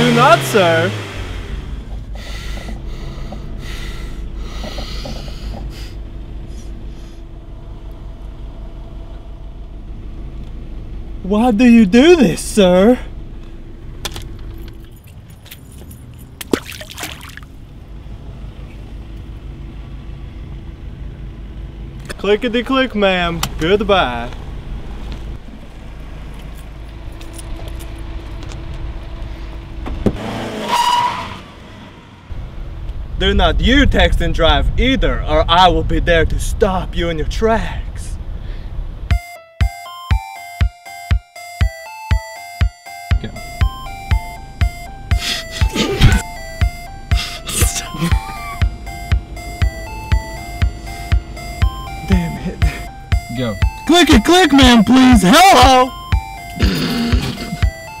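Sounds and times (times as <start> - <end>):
car engine idling: 0.0 - 16.6, 17.4 - 30.2, 42.6 - 58.0
heavy breathing: 2.1 - 7.3, 45.2 - 46.2, 47.1 - 48.2
loud high squeal: 30.6 - 31.6.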